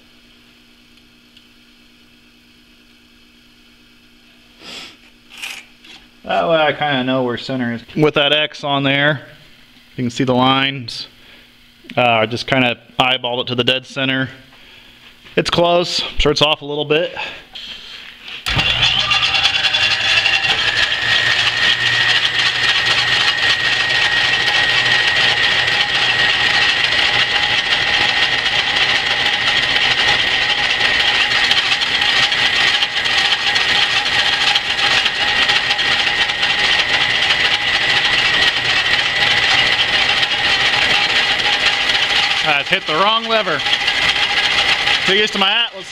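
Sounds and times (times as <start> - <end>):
metal lathe running: 18.4 - 45.9.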